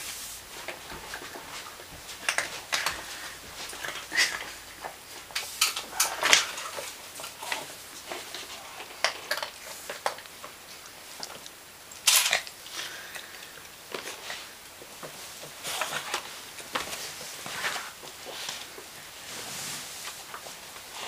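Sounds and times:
plastic bag rustling and crackling: 13.9s - 21.0s.

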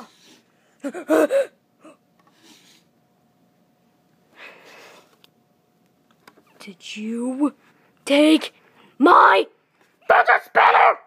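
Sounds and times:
high voice wordless cry: 6.9s - 11.0s.

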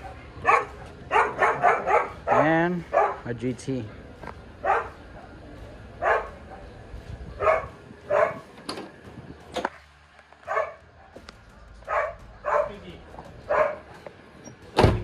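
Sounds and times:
dog barking: 0.0s - 3.3s, 4.6s - 5.0s, 6.0s - 6.7s, 7.4s - 8.4s, 10.5s - 11.2s, 11.9s - 12.8s, 13.5s - 13.9s.

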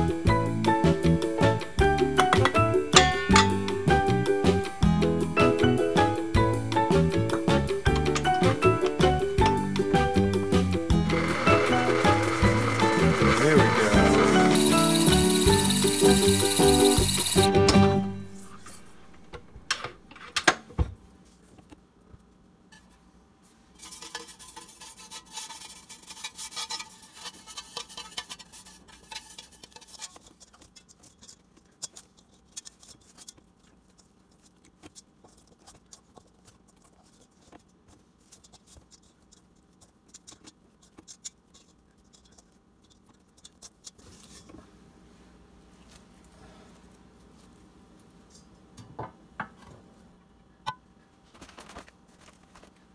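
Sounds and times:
spatula scraping dough off metal bowl: 11.1s - 17.5s, 23.7s - 33.4s
hands handling dough: 20.7s - 48.6s, 51.2s - 52.9s.

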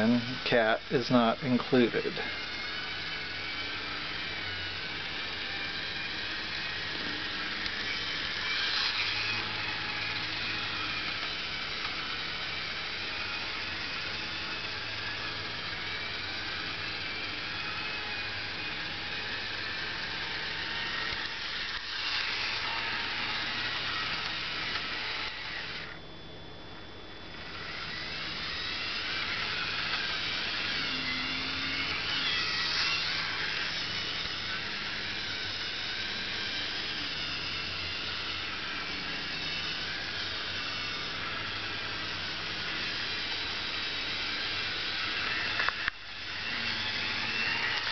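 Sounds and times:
model train motor whirring: 0.0s - 26.1s, 27.3s - 47.9s.

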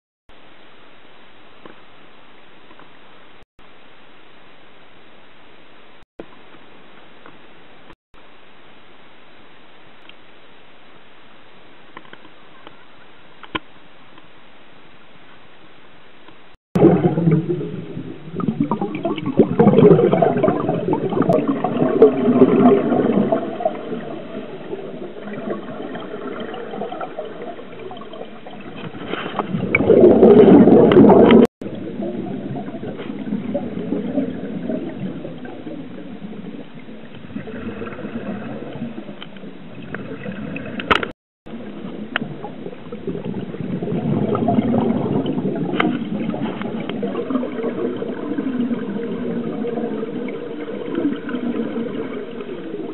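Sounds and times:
underwater bubbles gurgling: 16.8s - 52.9s.

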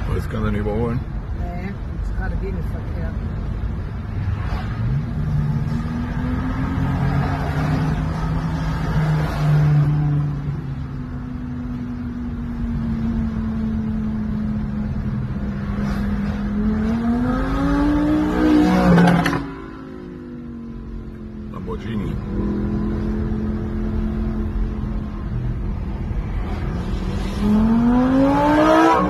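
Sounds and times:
passing car engines: 0.0s - 29.0s
car engine accelerating: 13.2s - 29.0s.

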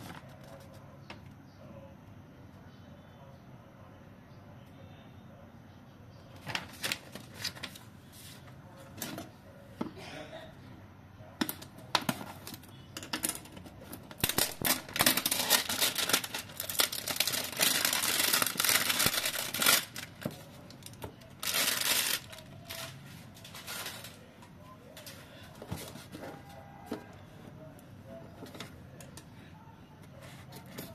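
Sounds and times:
cardboard packaging rustling: 14.1s - 24.3s.

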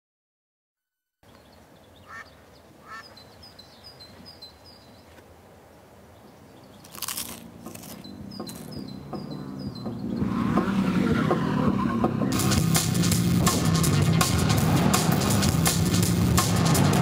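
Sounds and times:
small birds chirping: 1.2s - 11.3s
duck quacking: 2.0s - 3.1s
crisps crunching in a mouth: 6.8s - 8.7s
car engine approaching: 8.3s - 17.0s.

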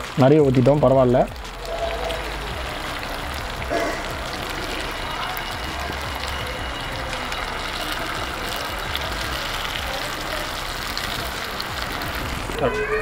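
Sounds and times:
batter sizzling in hot oil: 0.0s - 13.0s.

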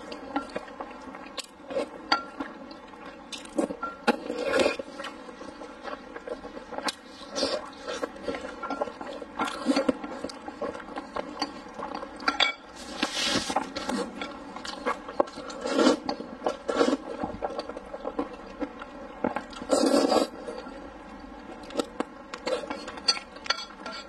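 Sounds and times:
chopsticks scraping a pan: 12.3s - 14.4s
slurping noodles: 14.8s - 17.3s, 19.6s - 20.6s.

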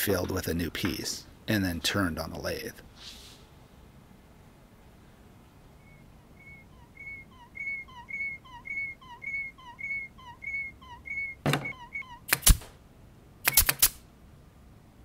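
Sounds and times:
squeaky cartoon chirps with blips: 5.8s - 12.4s
sharp clicks and snap: 12.3s - 12.8s, 13.4s - 14.0s.

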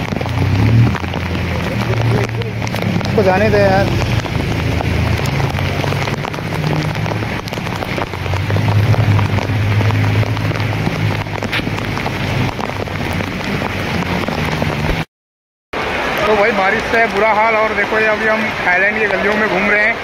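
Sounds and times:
heavy rain on street: 0.0s - 15.1s, 15.8s - 20.0s
vehicle engines humming: 0.0s - 15.1s.

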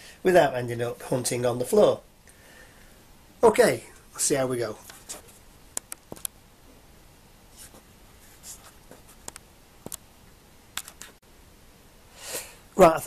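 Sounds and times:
soft rustles: 4.8s - 5.5s, 7.5s - 9.4s
small sharp clicks and taps: 5.7s - 6.4s, 9.2s - 10.1s.

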